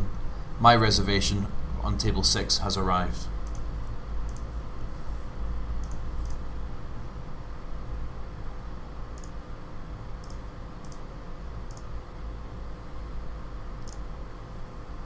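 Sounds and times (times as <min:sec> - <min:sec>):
low room hum: 0:00.0 - 0:15.0
computer mouse clicks: 0:03.4 - 0:04.5, 0:05.8 - 0:06.4, 0:09.1 - 0:09.4, 0:10.2 - 0:11.9, 0:13.8 - 0:14.0.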